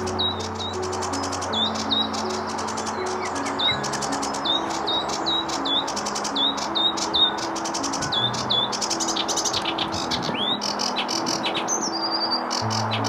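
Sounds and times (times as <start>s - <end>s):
bird singing clicks and trills: 0.0s - 13.0s.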